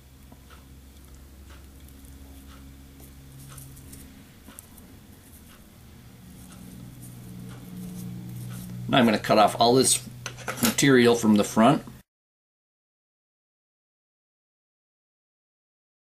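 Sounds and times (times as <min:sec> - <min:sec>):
low steady hum: 0:00.0 - 0:12.0
fingers and thread rustling: 0:00.3 - 0:08.9.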